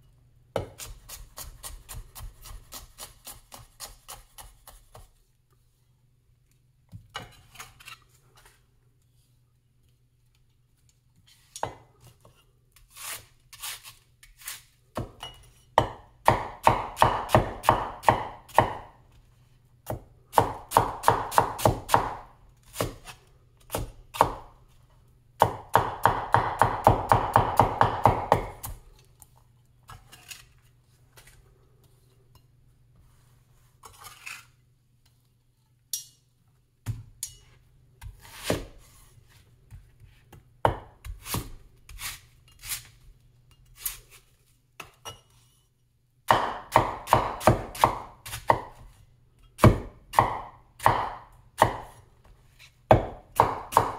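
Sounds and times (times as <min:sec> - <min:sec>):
cleaver chopping on wooden board: 0:15.8 - 0:18.9, 0:19.9 - 0:22.2, 0:25.4 - 0:28.7, 0:46.3 - 0:48.8, 0:49.6 - 0:51.9, 0:52.9 - 0:53.9.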